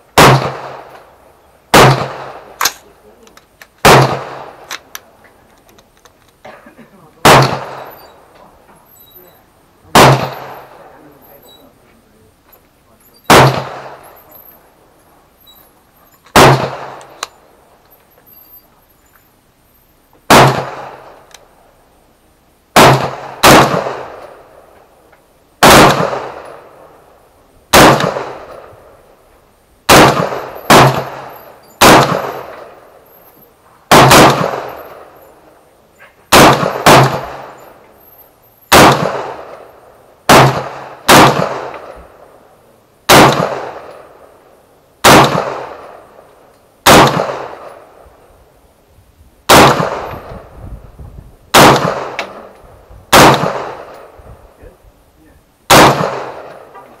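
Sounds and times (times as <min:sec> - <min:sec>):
rifle shots echoing: 0:00.1 - 0:03.2, 0:03.8 - 0:05.0, 0:07.2 - 0:08.4, 0:09.9 - 0:11.6, 0:13.2 - 0:14.8, 0:16.2 - 0:17.6, 0:20.2 - 0:21.6, 0:22.7 - 0:24.9, 0:25.6 - 0:29.2, 0:29.8 - 0:35.6, 0:36.3 - 0:44.4, 0:45.0 - 0:48.2, 0:49.5 - 0:50.5, 0:51.5 - 0:54.5, 0:55.7 - 0:57.0.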